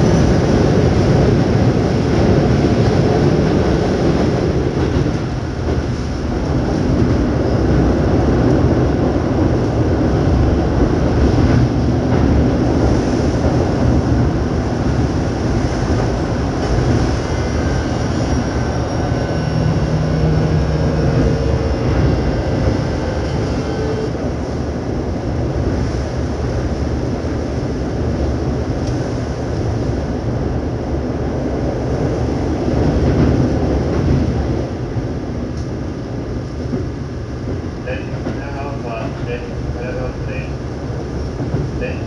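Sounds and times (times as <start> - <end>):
train wheels rolling: 0.0 - 30.0
inverter and motor whine: 14.6 - 26.0.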